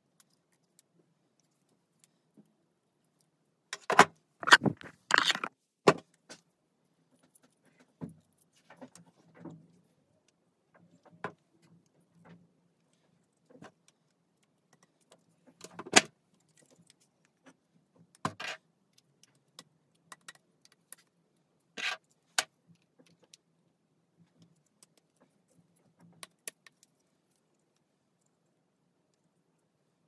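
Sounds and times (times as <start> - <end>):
plastic and metal parts clattering: 3.8 - 5.6.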